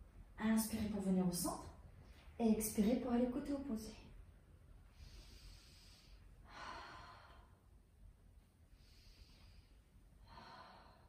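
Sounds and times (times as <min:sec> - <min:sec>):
faint low room hum: 0:00.0 - 0:11.0
woman breathing softly: 0:04.8 - 0:11.0.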